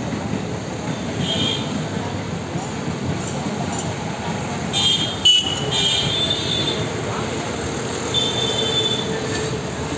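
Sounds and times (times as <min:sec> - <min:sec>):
train coaches rumbling past: 0:00.0 - 0:09.9
train wheels squealing: 0:08.0 - 0:09.9.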